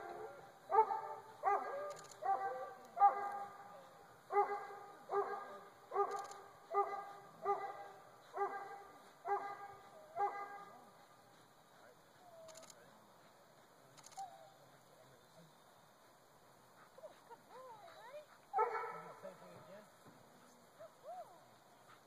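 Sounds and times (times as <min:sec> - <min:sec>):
dog barking: 0:00.0 - 0:03.7, 0:04.3 - 0:10.8, 0:18.5 - 0:19.2.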